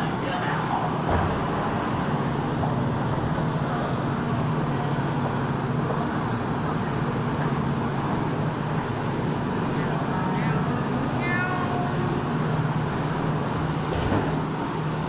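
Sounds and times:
metro train rumbling: 0.0s - 15.0s.

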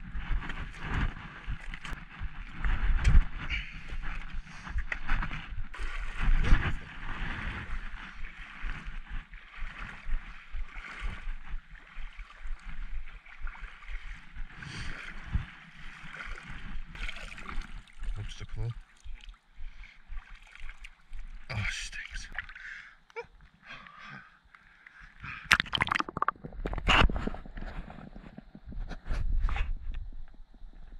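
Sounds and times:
footsteps and handling on rock: 0.0s - 10.4s
seawater sloshing and gurgling: 0.2s - 21.5s, 25.4s - 28.2s.

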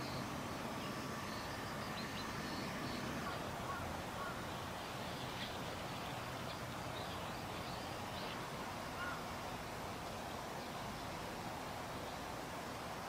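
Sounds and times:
faint bird calls: 0.0s - 9.7s
outdoor background hiss: 0.0s - 13.0s.

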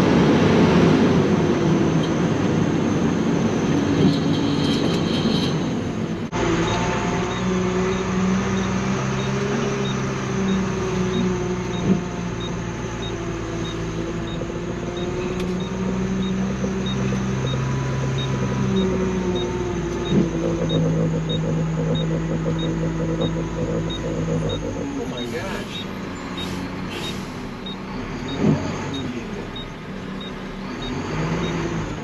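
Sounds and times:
truck engine driving: 0.0s - 32.0s
faint regular ticking: 8.6s - 25.0s.

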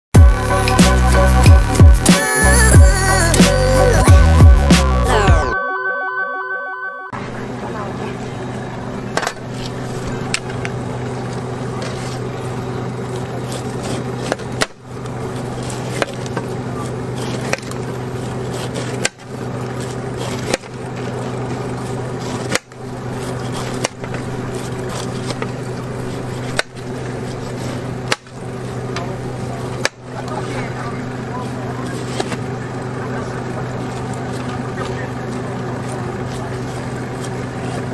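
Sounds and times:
faint voices: 7.2s - 10.3s, 28.7s - 37.9s.

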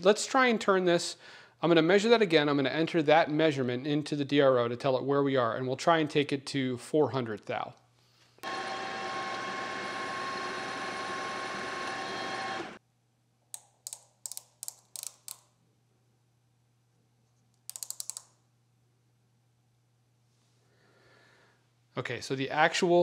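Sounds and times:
metal lathe whining: 8.4s - 12.8s
sharp clicks: 13.6s - 15.5s, 17.6s - 18.4s
rapid clicks: 17.6s - 18.4s.

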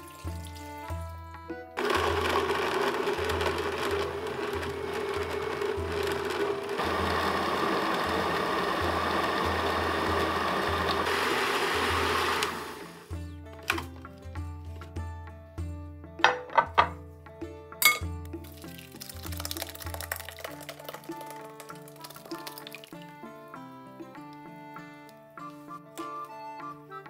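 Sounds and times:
blender motor blending: 1.8s - 13.1s.

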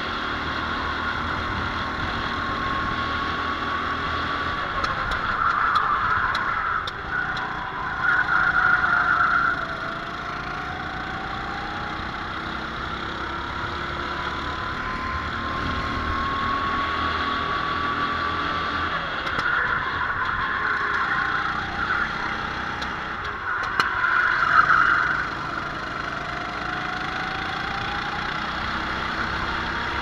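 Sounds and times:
kart engine accelerating: 0.0s - 30.0s
other karts nearby: 0.0s - 30.0s.

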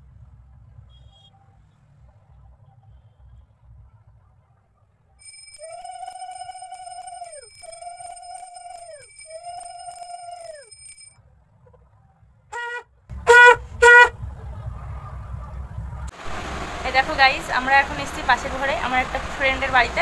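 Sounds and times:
conch shell blown: 5.2s - 10.6s, 12.6s - 14.1s.

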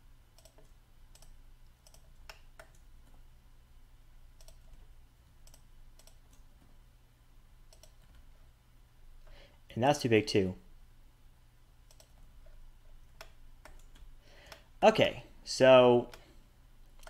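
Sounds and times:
low steady hum: 0.0s - 17.0s
mouse and keyboard clicks: 7.7s - 8.2s, 11.9s - 12.2s.

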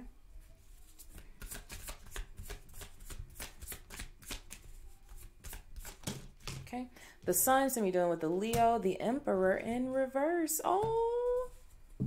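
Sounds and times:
cards being shuffled: 0.7s - 6.6s.

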